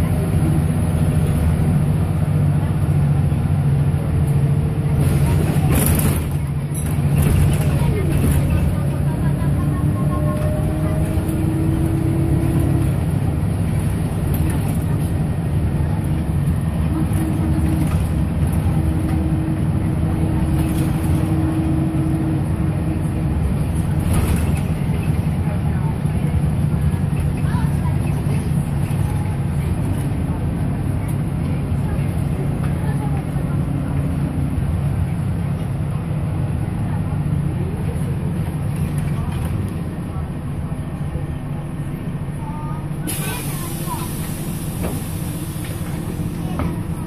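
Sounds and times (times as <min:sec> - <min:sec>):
bus diesel engine drone: 0:00.0 - 0:47.0
road noise: 0:00.0 - 0:47.0
hiss: 0:43.1 - 0:46.0.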